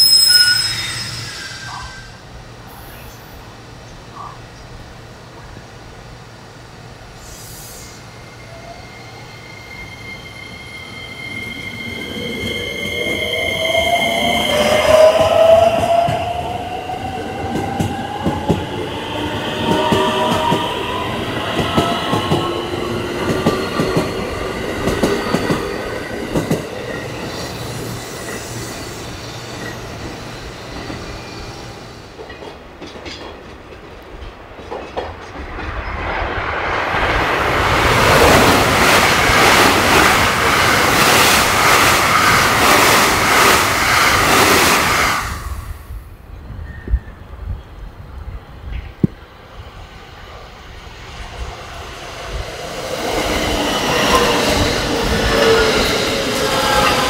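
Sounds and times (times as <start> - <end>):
train passing at speed: 0.0 - 57.0
wheels clicking over rail joints: 32.2 - 36.0.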